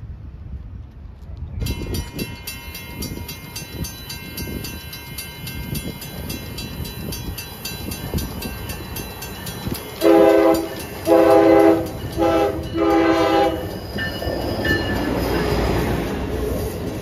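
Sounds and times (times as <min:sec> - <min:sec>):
train rumble and wheel noise: 0:00.0 - 0:17.0
train horn blasts: 0:10.0 - 0:13.8.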